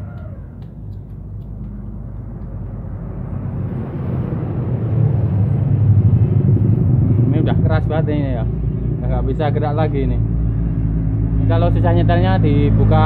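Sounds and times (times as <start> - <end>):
vehicle engine rumbling: 0.0 - 13.0.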